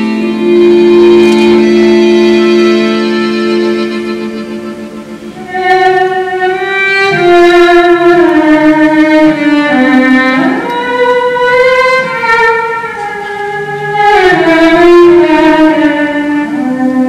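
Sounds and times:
button accordion: 0.0 - 15.8
cello: 0.0 - 17.0.

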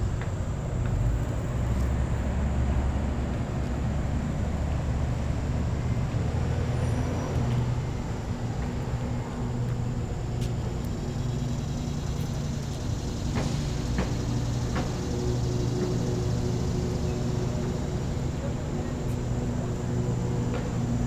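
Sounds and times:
faint engine hum: 0.0 - 21.0
traffic rumble: 0.0 - 21.0.

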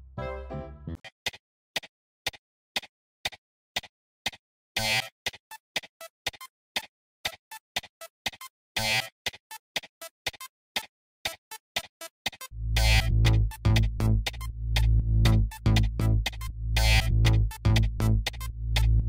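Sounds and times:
music with sharp beats: 4.8 - 19.0.

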